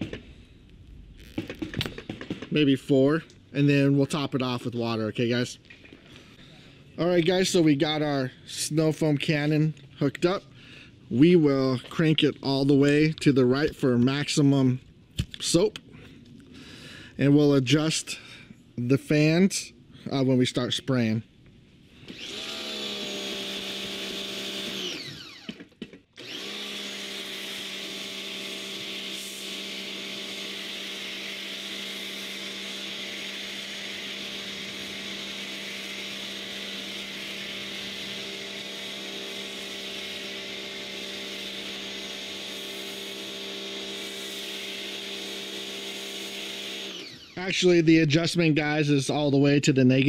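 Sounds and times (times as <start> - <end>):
pressure washer motor whining: 22.0 - 47.8.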